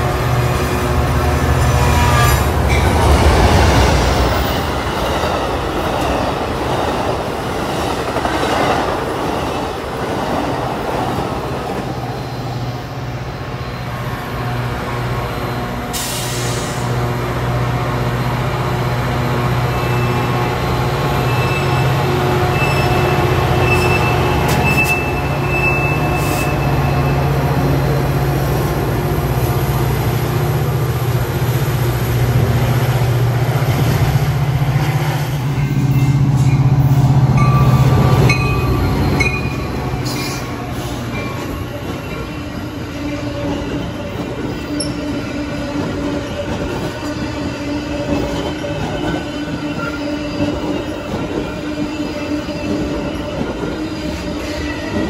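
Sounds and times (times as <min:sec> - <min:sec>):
diesel train engine drone: 0:00.0 - 0:08.3, 0:08.9 - 0:55.0
train wheel squeal: 0:11.8 - 0:14.2, 0:19.7 - 0:20.4, 0:21.2 - 0:27.7, 0:35.6 - 0:55.0.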